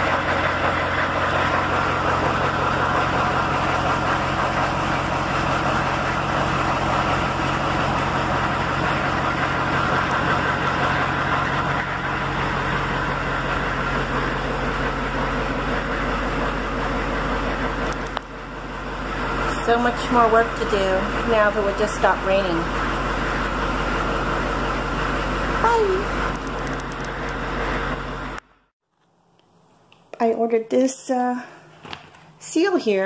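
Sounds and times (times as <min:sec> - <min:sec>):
bus engine idling: 0:00.0 - 0:28.4.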